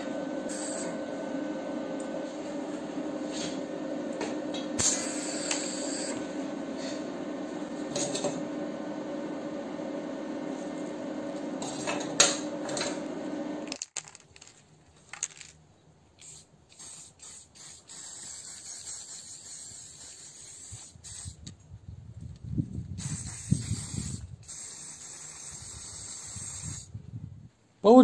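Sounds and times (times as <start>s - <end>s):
welding machine humming and crackling: 0.0s - 14.2s
spray paint can hissing: 4.8s - 6.2s, 16.2s - 21.6s, 23.0s - 26.9s.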